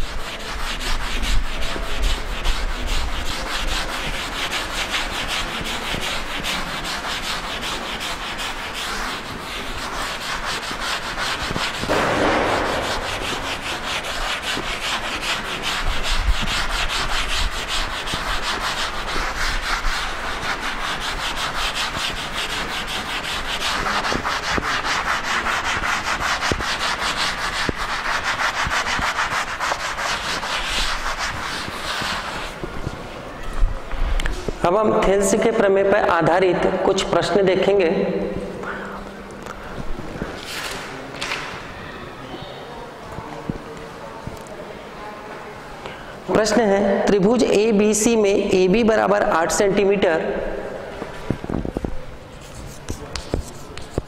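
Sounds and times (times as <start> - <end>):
eraser scrubbing blackboard: 0.0 - 33.1, 51.1 - 54.0.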